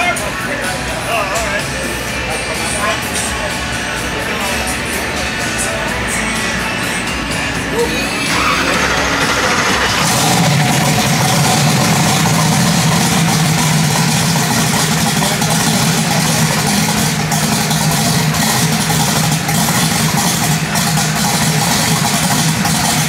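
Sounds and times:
engine running steadily: 0.0s - 23.0s.

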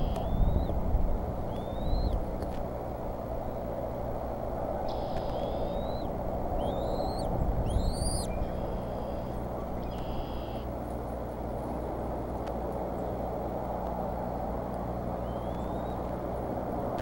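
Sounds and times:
eaglets peeping: 0.0s - 0.8s, 1.4s - 2.2s, 4.9s - 10.7s, 15.2s - 16.1s.

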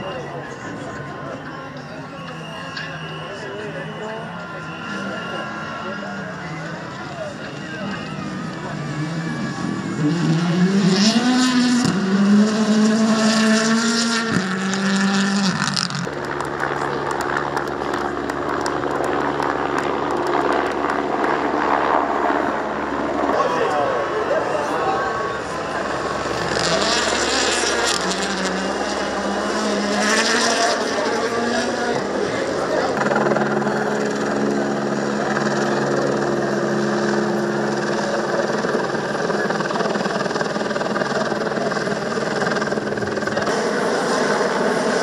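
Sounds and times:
rally car engine at full throttle: 0.0s - 45.0s
rally car engine revving hard: 8.9s - 16.1s, 26.3s - 38.7s, 43.2s - 45.0s.

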